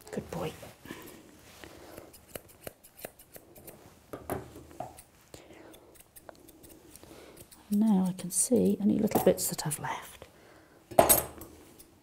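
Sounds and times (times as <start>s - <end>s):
scissors snipping hair: 1.9s - 3.8s, 5.7s - 9.2s.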